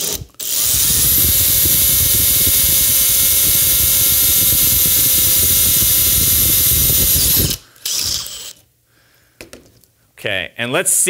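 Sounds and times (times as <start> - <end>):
drill bit cutting metal: 0.0 - 8.6
drill motor whining: 0.0 - 8.6.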